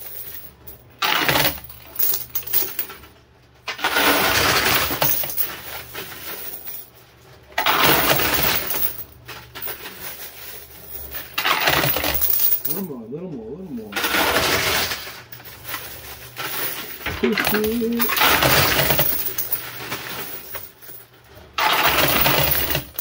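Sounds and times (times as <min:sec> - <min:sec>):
coins clattering: 0:00.0 - 0:03.1, 0:03.7 - 0:13.0, 0:13.8 - 0:23.0
steady low hum: 0:12.1 - 0:21.6.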